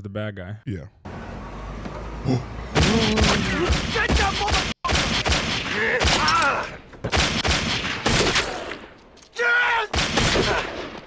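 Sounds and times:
gunshot bursts with echo: 7.1s - 8.7s.

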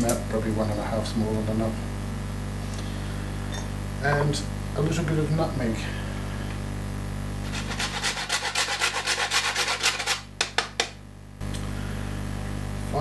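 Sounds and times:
nutmeg rasping on a grater: 7.4s - 10.3s.

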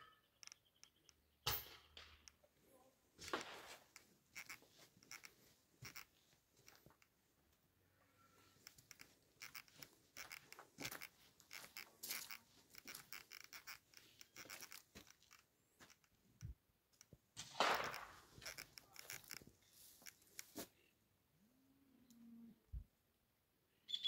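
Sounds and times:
footsteps on gravel: 8.5s - 15.9s
phone handling rustle: 17.9s - 20.6s.

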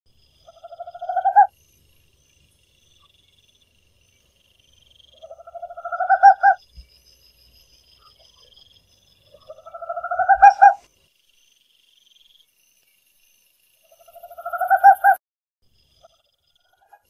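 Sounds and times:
owl pulsed calls: 0.4s - 1.5s, 5.1s - 6.8s, 9.3s - 10.8s, 14.1s - 15.2s.

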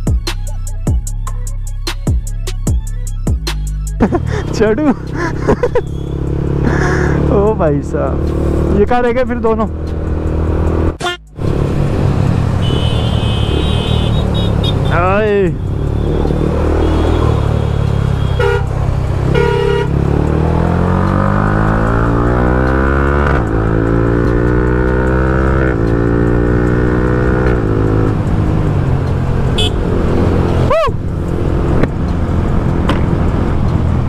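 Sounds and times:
motorcycle engine revving: 4.0s - 34.0s
horn beeps: 11.0s - 11.4s, 12.6s - 20.0s, 29.5s - 29.9s.

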